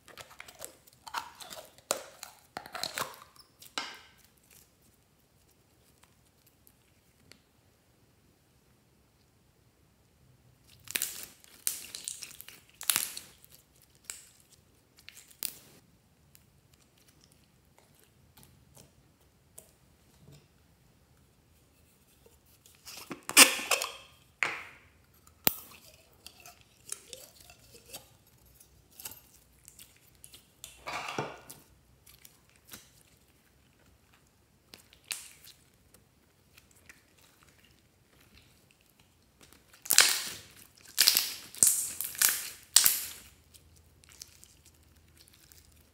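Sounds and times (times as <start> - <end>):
slime squishing: 31.4 - 45.9.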